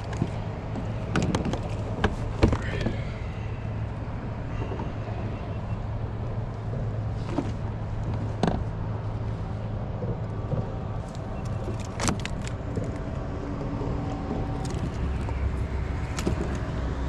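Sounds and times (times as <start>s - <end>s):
sharp knocks and clicks: 0.0s - 2.9s
low mechanical rumble: 0.0s - 17.0s.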